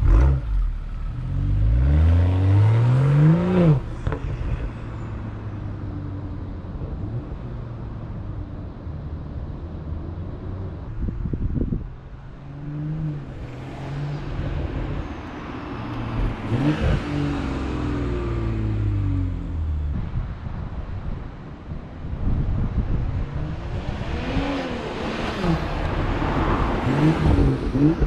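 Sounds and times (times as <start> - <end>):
car engine revving: 0.0 - 4.6, 15.9 - 19.7, 23.4 - 28.0.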